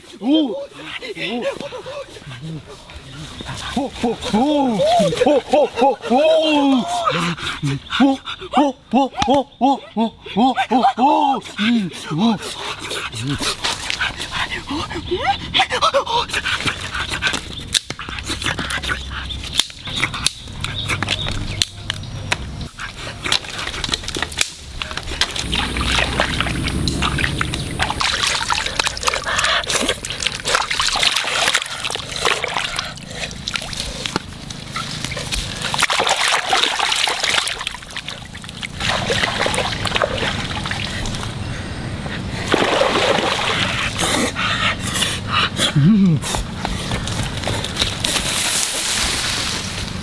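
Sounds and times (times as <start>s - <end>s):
water splashing and sloshing: 22.9s - 41.4s, 42.2s - 44.4s.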